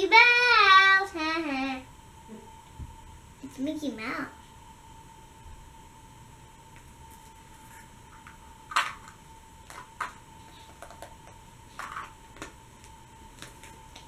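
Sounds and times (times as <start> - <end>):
plastic egg halves clicking: 8.7 - 12.5.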